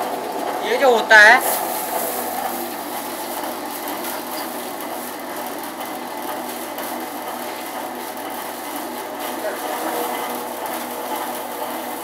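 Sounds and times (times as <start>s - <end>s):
paper shredder running: 0.0s - 12.0s.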